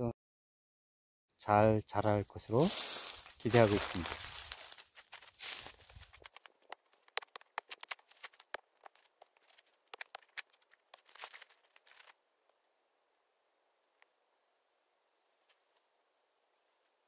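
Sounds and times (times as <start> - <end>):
dry leaves crackling and rustling: 2.6 - 6.4.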